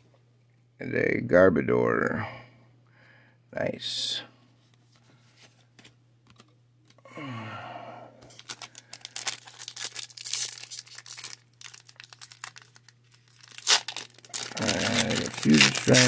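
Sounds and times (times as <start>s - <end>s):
foil wrapper crinkling and tearing: 8.3s - 16.0s.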